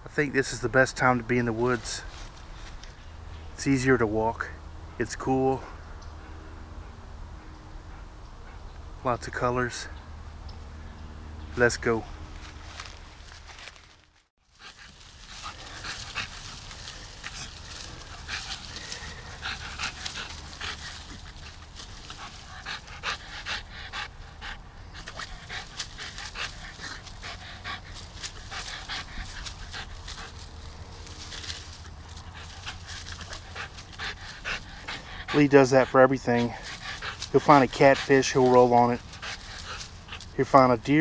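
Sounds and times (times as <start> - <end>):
dry leaves crackling and rustling: 12.3 - 23.7, 25.0 - 35.4, 36.4 - 41.0
dog panting: 14.5 - 41.0.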